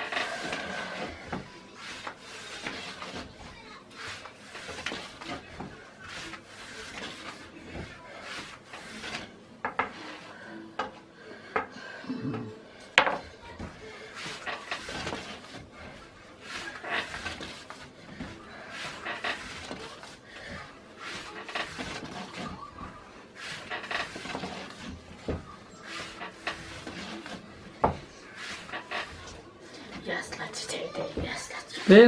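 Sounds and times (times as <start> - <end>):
dough rubbing on a board: 0.0 - 10.4, 13.3 - 32.0.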